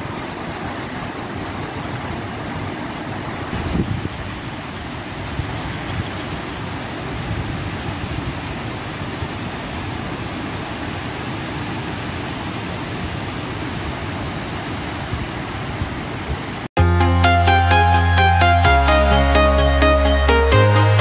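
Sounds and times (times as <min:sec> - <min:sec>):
waterfall rushing: 0:00.0 - 0:16.7.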